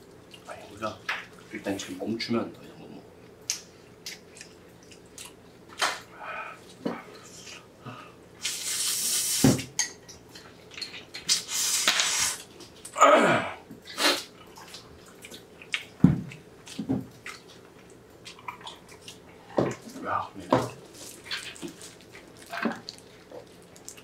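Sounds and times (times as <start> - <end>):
wet chewing: 14.3 - 19.5, 20.9 - 24.0.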